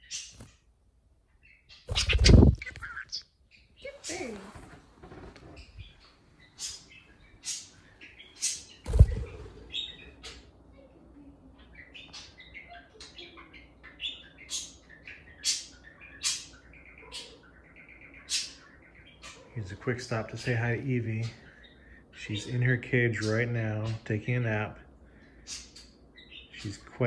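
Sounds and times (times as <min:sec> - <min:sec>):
budgerigar chirping: 0:01.4 - 0:04.0, 0:11.8 - 0:19.6.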